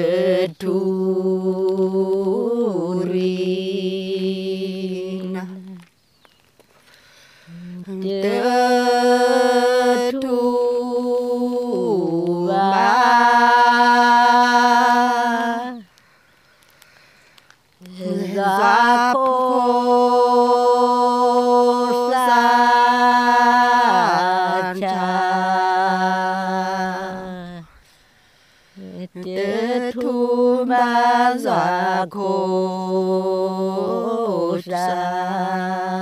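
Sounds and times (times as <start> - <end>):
woman chanting: 0.0 - 5.8, 7.5 - 15.9, 17.8 - 27.8, 28.8 - 36.0.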